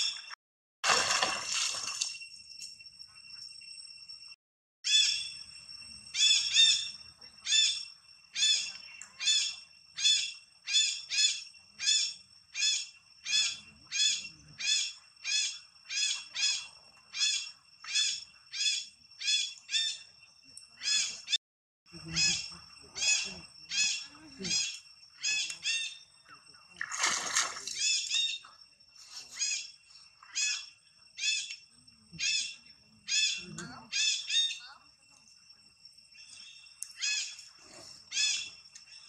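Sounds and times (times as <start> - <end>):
high-pitched animal call: 22.0 - 26.0.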